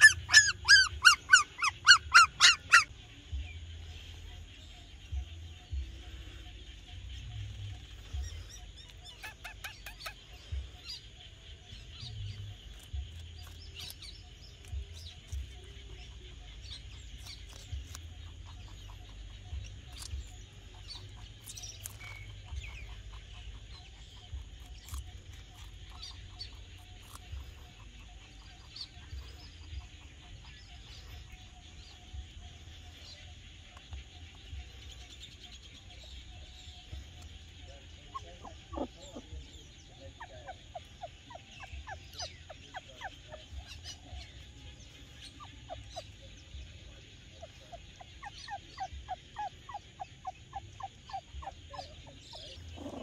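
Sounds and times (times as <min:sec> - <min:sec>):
high animal calls: 0:00.0 - 0:02.9
low rumble: 0:02.9 - 0:09.2
rabbit crunching cucumber: 0:12.0 - 0:30.6.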